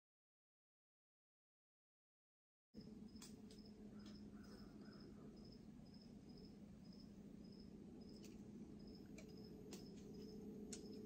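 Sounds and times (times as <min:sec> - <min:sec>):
cricket chirping: 0:02.8 - 0:11.0
low steady hum: 0:02.8 - 0:11.0.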